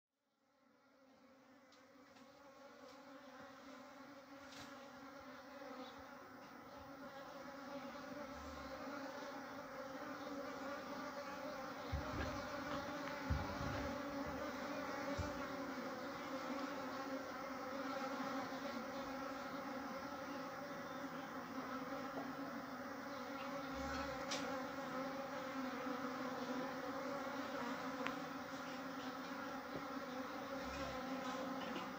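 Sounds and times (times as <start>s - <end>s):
honey bees buzzing: 0.5s - 31.9s
low thumps: 11.8s - 14.5s.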